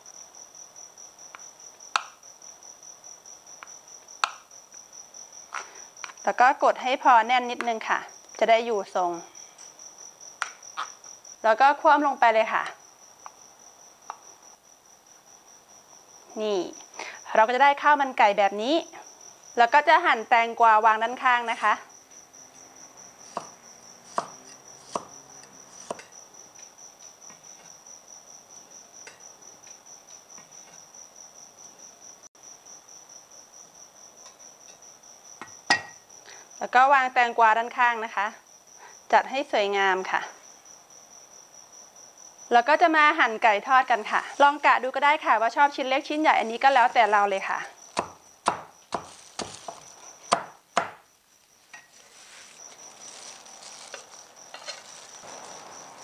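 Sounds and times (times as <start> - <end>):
cleaver chopping on wooden board: 23.3 - 25.2, 47.9 - 51.0.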